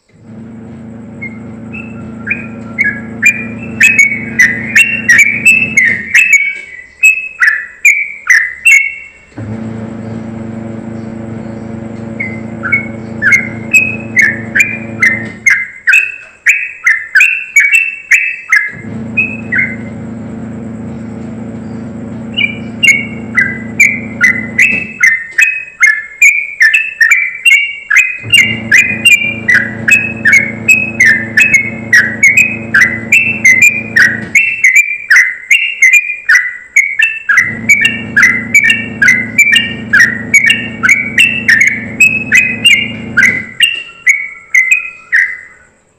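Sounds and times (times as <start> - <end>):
low steady hum: 0.0 - 6.1, 9.3 - 15.4, 18.7 - 24.9, 28.2 - 34.4, 37.4 - 43.6
bulbul singing rapid high notes: 0.3 - 6.5, 10.5 - 15.7, 18.7 - 25.2, 28.1 - 34.8, 37.3 - 43.8.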